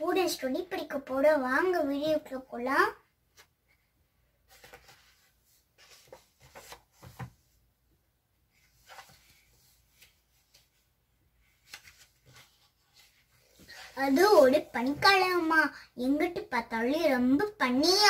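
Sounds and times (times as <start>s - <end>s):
paper rustling: 4.5s - 7.6s, 8.6s - 15.5s.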